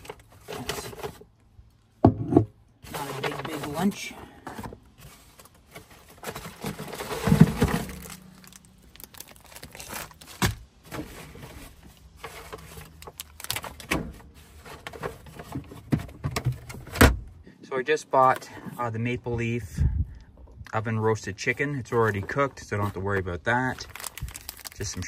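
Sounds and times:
paper bags rustling: 2.9s - 15.9s, 21.5s - 25.0s.

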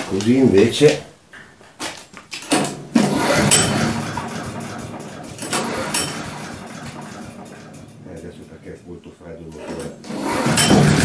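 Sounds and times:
engine pull-start: 2.5s - 8.8s, 9.6s - 11.0s
petrol engine running: 2.8s - 9.0s, 9.6s - 11.0s.

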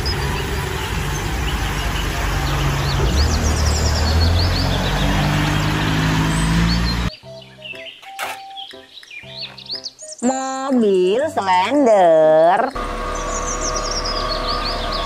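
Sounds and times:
bus engine humming: 0.0s - 7.1s, 12.6s - 15.0s
road noise on wet road: 0.0s - 7.1s, 12.8s - 15.0s
small birds chirping: 0.0s - 11.7s, 13.1s - 15.0s.

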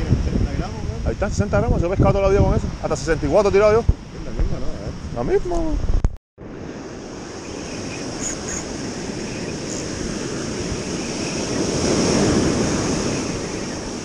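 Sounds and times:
wind: 0.0s - 14.0s
surf washing up a beach: 6.4s - 14.0s.

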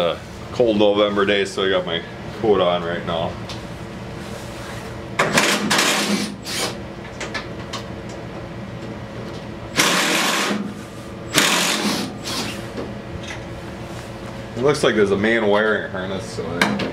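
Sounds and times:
cordless impact driver: 5.3s - 6.8s, 9.8s - 10.6s, 11.3s - 12.6s.

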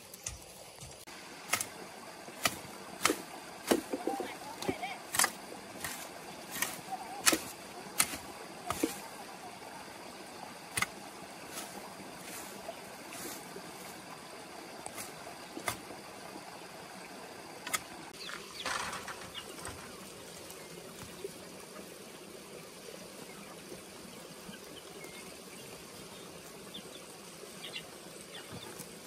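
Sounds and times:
rustle of cut plants: 0.0s - 16.5s
background hiss: 0.0s - 29.0s
machete chopping weeds: 1.4s - 9.2s, 10.7s - 12.6s, 14.9s - 15.9s.

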